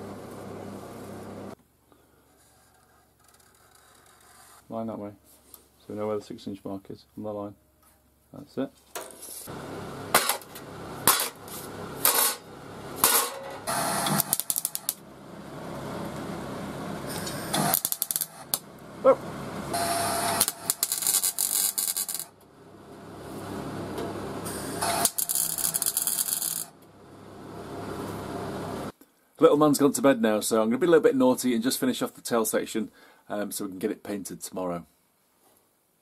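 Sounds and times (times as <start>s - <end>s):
welder crackling: 9.0s - 15.0s, 17.0s - 18.8s, 19.7s - 22.4s, 23.9s - 26.9s
angle grinder cutting steel: 13.0s - 15.0s, 19.8s - 22.3s, 24.4s - 26.7s.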